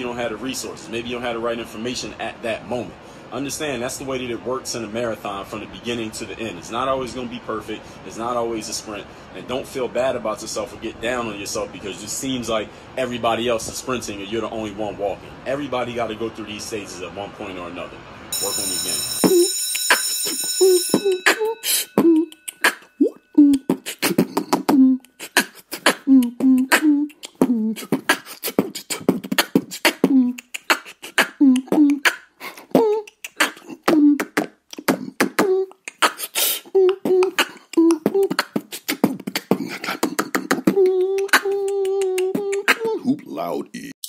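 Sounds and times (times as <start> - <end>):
short pitched vocal notes: 20.8 - 44.0
beatbox clicks and snare strokes: 23.5 - 42.9.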